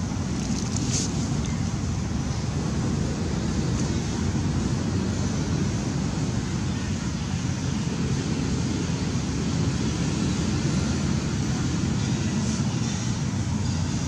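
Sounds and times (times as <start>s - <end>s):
low rumbling background noise: 0.0s - 14.0s.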